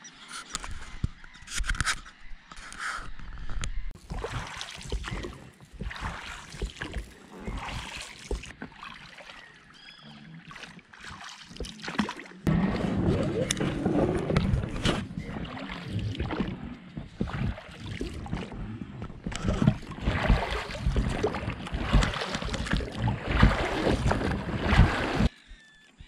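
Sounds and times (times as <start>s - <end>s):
oars splashing through water: 4.0s - 25.4s
dull low thumps: 12.5s - 25.3s.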